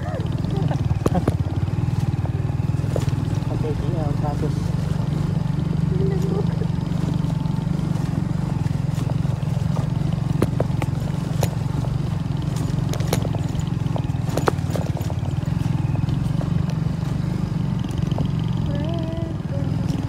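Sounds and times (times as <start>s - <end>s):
knocks and rattles from bumps: 0.0s - 5.2s, 6.1s - 17.0s
motorcycle engine at low revs: 0.0s - 20.0s.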